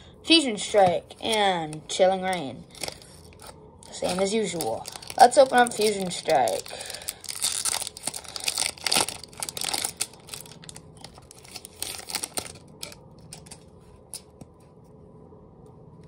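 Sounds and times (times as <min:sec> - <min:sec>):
cards clicking and rustling: 0:02.2 - 0:14.3
foil wrapper crinkling and tearing: 0:02.6 - 0:13.6.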